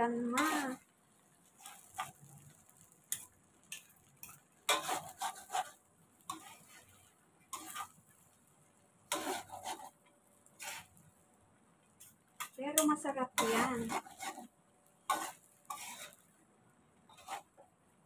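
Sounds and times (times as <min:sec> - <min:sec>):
metal tongs clattering against a pan: 0:01.6 - 0:05.4, 0:12.4 - 0:14.4.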